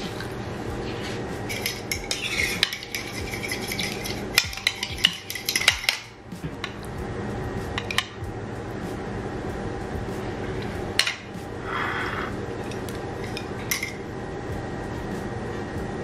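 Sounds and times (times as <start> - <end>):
metal spoon stirring in ceramic bowl: 1.5 - 6.1.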